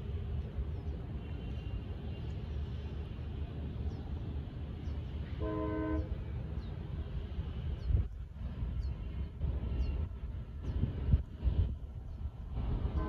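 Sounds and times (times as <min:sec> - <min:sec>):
train horn blast: 0:05.4 - 0:06.2.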